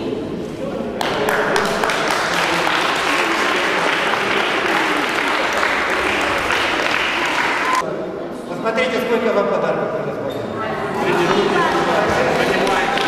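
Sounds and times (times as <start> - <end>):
people applauding: 1.0 - 7.8, 11.3 - 13.0.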